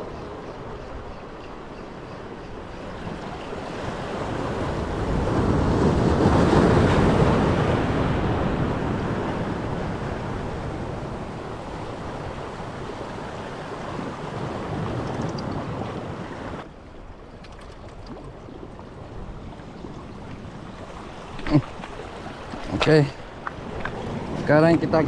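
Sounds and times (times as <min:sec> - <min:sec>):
waves washing over rocks: 0:20.3 - 0:25.0.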